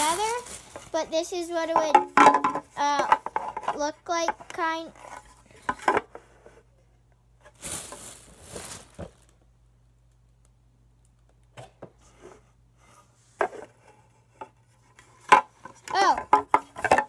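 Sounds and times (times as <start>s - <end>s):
plastic pieces rustling: 0.0s - 1.9s, 7.5s - 9.4s.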